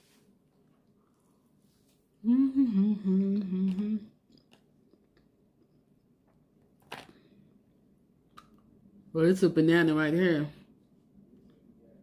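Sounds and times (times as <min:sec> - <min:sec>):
woman humming: 0:02.2 - 0:04.2.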